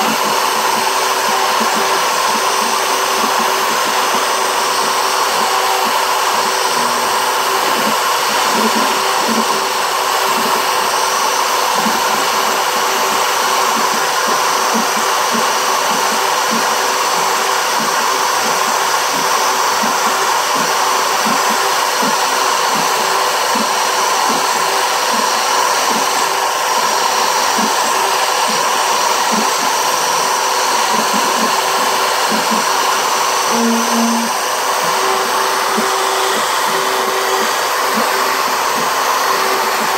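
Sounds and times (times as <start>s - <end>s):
router motor whining: 0.0s - 39.9s.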